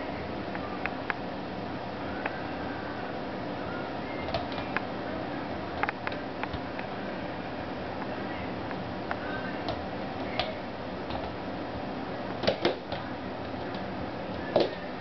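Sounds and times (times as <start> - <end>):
hooves tapping on wooden floor: 12.4 - 14.8.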